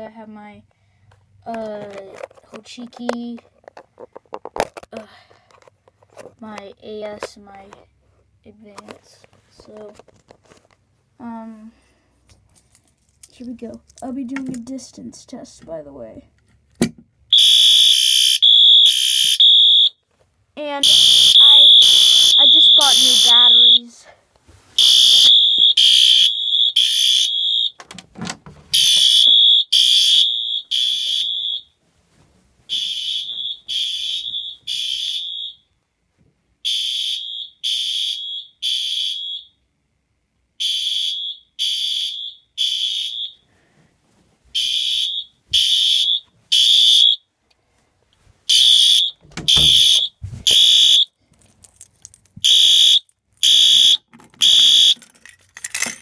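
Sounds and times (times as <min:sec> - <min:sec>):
fire alarm horn beeping: 0:17.3 - 0:20.0, 0:20.8 - 0:24.0, 0:24.8 - 0:27.8, 0:28.7 - 0:31.7, 0:32.7 - 0:35.6, 0:36.6 - 0:39.6, 0:40.6 - 0:43.4, 0:44.6 - 0:47.2, 0:48.5 - 0:51.1, 0:52.4 - 0:55.0.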